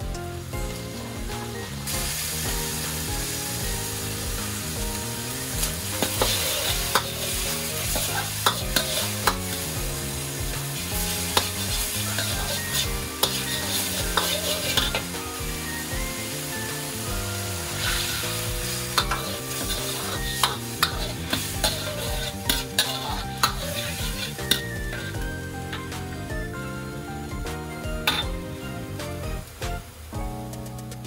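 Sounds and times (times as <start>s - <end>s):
meat sizzling in a wok: 0.0s - 30.2s
metal ladle clanking on wok: 6.0s - 9.6s, 11.2s - 15.0s, 19.0s - 25.1s, 28.0s - 28.3s.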